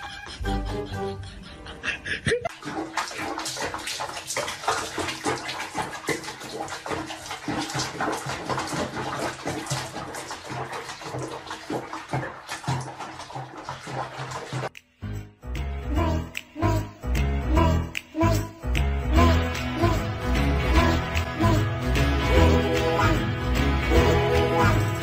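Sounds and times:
music: 0:00.0 - 0:02.2, 0:14.7 - 0:25.0
bath water splashing: 0:02.5 - 0:14.8.

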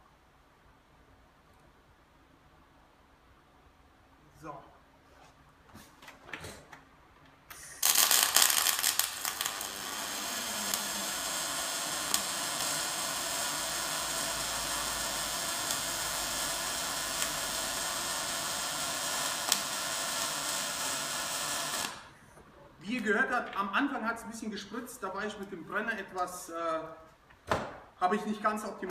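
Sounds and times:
welding arc hissing: 0:07.5 - 0:22.2
welding spatter crackle: 0:07.5 - 0:22.2.

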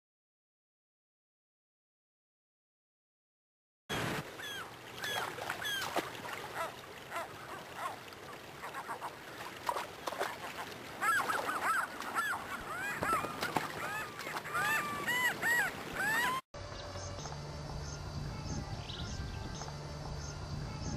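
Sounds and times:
river water rushing: 0:03.9 - 0:16.4
gulls calling: 0:03.9 - 0:16.5.

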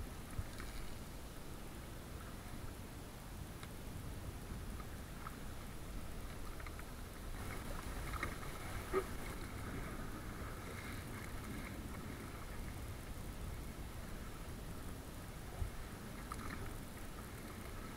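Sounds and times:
paddle strokes: 0:00.0 - 0:02.7, 0:03.6 - 0:17.9
water splashing against plastic hull: 0:06.5 - 0:12.3.

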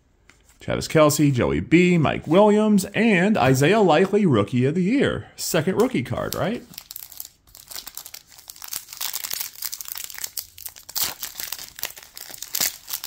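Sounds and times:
foil wrapper crinkling and tearing: 0:06.2 - 0:13.0.

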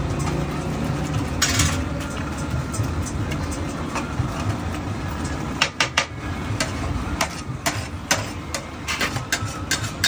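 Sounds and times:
metal spatula clinking on griddle: 0:05.8 - 0:10.0.

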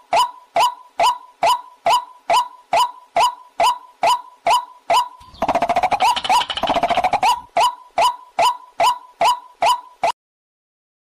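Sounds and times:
bird harsh rattling call: 0:05.2 - 0:07.4.

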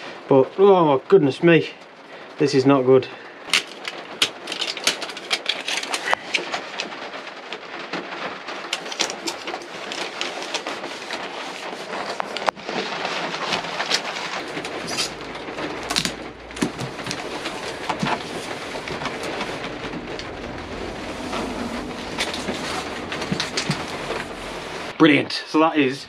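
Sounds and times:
foil crackling and crinkling: 0:03.1 - 0:25.2
foil tape peeling: 0:03.5 - 0:24.9.

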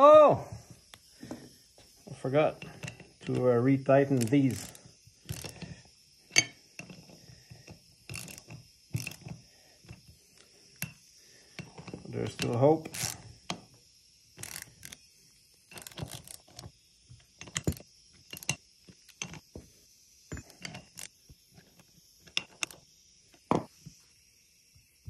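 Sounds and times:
hand ratchet clicking: 0:02.5 - 0:13.6, 0:14.4 - 0:15.0, 0:15.7 - 0:19.5, 0:22.2 - 0:22.8
socket clinking on screws: 0:06.3 - 0:10.0.

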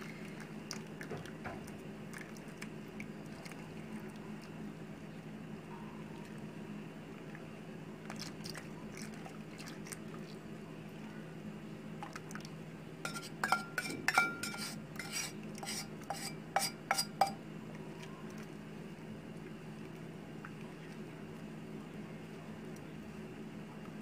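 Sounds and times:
steady low hum: 0:00.0 - 0:24.0
metal jug clinking against pan: 0:13.1 - 0:17.4.

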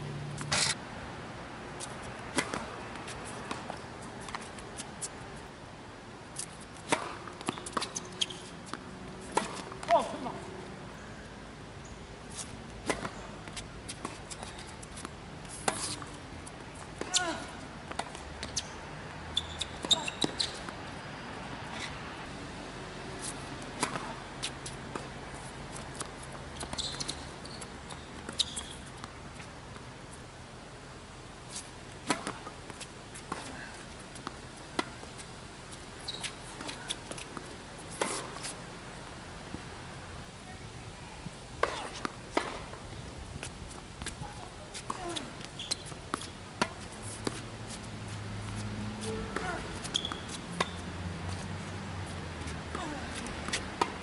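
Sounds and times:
sneaker squeaks: 0:00.4 - 0:00.8, 0:06.4 - 0:10.2, 0:11.8 - 0:14.9, 0:15.5 - 0:16.2, 0:17.0 - 0:22.0, 0:25.7 - 0:29.1, 0:36.0 - 0:38.6, 0:41.6 - 0:42.7, 0:44.2 - 0:54.0
tennis ball bouncing: 0:01.8 - 0:05.1, 0:06.4 - 0:10.5, 0:12.8 - 0:18.8, 0:19.4 - 0:21.0, 0:23.2 - 0:29.8, 0:31.5 - 0:39.7, 0:41.6 - 0:54.0
racket hitting ball: 0:02.3 - 0:04.4, 0:06.8 - 0:10.3, 0:23.7 - 0:25.1, 0:32.0 - 0:35.1, 0:41.6 - 0:42.8, 0:44.8 - 0:47.8, 0:48.5 - 0:50.8, 0:52.7 - 0:54.0
tennis ball knocks: 0:41.6 - 0:42.8.

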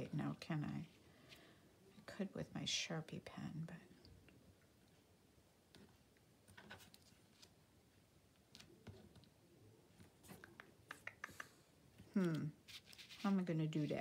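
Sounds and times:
craft materials rustling: 0:12.0 - 0:14.0.

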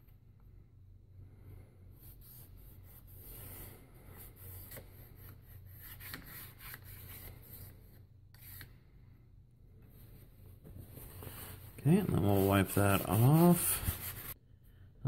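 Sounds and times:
chalk scratching on chalkboard: 0:02.0 - 0:07.7, 0:08.3 - 0:08.7, 0:11.2 - 0:14.4.

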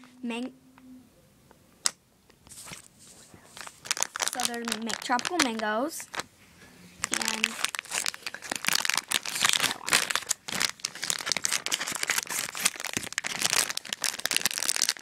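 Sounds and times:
snack wrapper crinkling: 0:03.5 - 0:06.3, 0:07.0 - 0:15.0.

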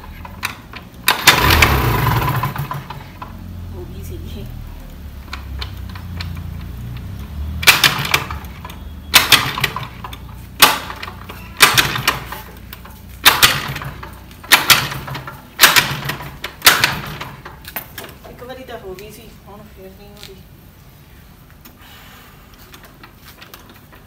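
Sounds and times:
scooter engine turning over: 0:00.0 - 0:03.6, 0:05.0 - 0:18.2.

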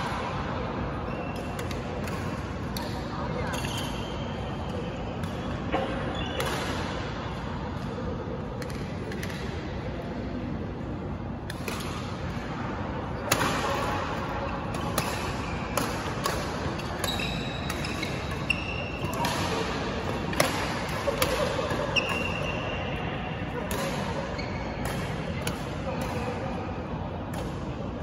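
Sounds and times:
rackets striking shuttlecock: 0:01.2 - 0:07.0, 0:11.4 - 0:12.5, 0:13.2 - 0:22.6, 0:23.5 - 0:26.6
shoes squeaking on court: 0:04.8 - 0:06.5, 0:16.8 - 0:19.3.

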